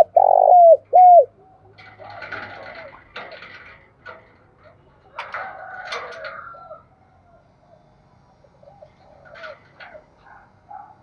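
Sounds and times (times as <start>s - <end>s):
dove cooing: 0.0s - 3.0s, 8.6s - 10.0s.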